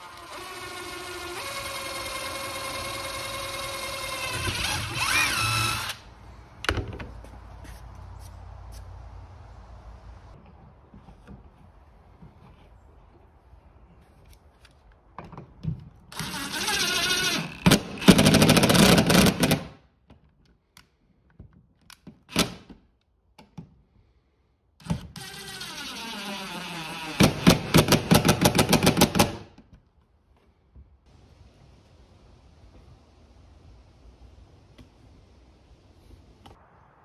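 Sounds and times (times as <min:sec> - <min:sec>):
drill motor whining: 0:00.0 - 0:06.0.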